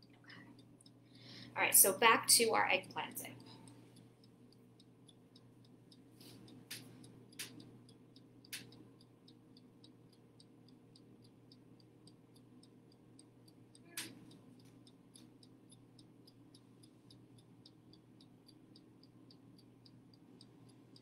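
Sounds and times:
oven timer ticking: 0.0s - 21.0s
sharp click: 6.3s - 7.7s, 8.5s - 8.8s, 13.8s - 15.3s.

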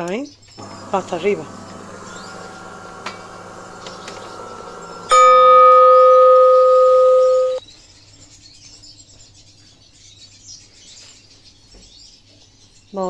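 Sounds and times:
coffee machine electronic beep: 0.6s - 7.6s.

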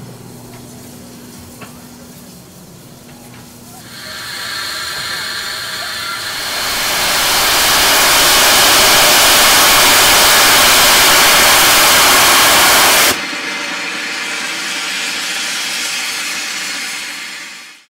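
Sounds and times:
steam hissing from locomotive: 3.7s - 17.9s.

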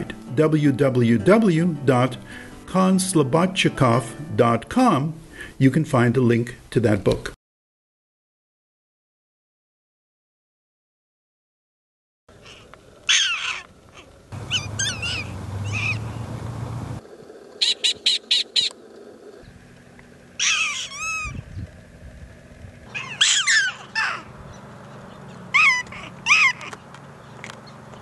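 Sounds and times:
prairie dogs yipping: 12.3s - 17.0s, 17.6s - 19.6s, 20.3s - 21.7s, 22.9s - 27.9s.

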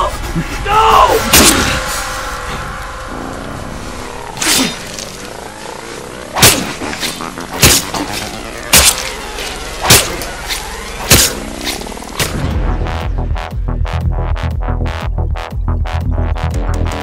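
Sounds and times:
heavy chopping blows: 0.0s - 2.7s, 3.9s - 12.6s
low dark drone: 0.0s - 17.0s.

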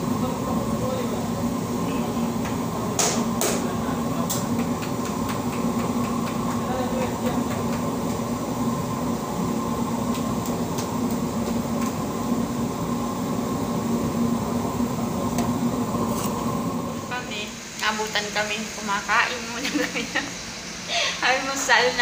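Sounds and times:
bread oven roaring: 0.0s - 22.0s
faint taps of dough: 4.4s - 8.2s.

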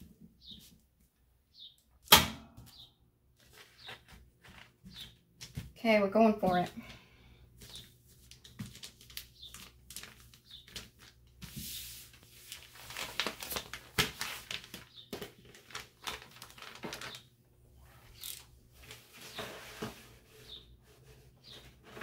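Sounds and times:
paper rustling and crinkling: 3.4s - 5.7s, 7.6s - 17.3s.

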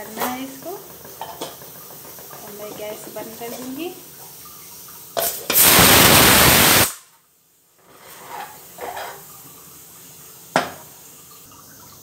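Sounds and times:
loud even hiss: 5.2s - 7.1s.

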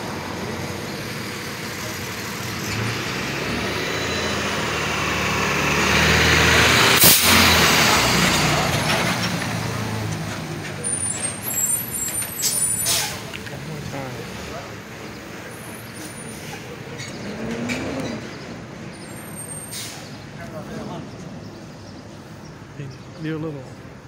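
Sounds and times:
truck engine passing: 0.0s - 23.7s
sharp burst of hiss: 7.0s - 7.4s.

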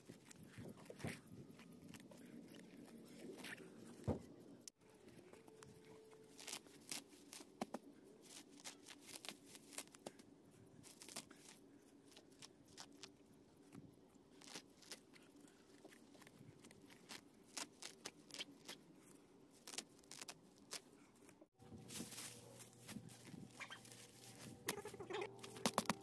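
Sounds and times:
weeds tearing from soil: 5.5s - 7.6s, 8.2s - 10.0s, 10.8s - 13.1s, 16.2s - 18.8s, 19.5s - 20.9s, 21.8s - 26.0s.

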